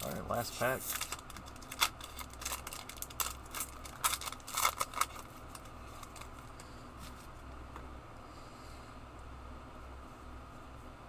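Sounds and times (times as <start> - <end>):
foil wrapper tearing and crinkling: 0.8 - 6.4.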